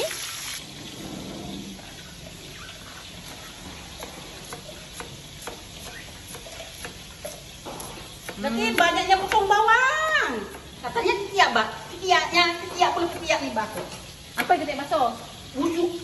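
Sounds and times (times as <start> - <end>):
knife chopping on plastic board: 3.2 - 10.8.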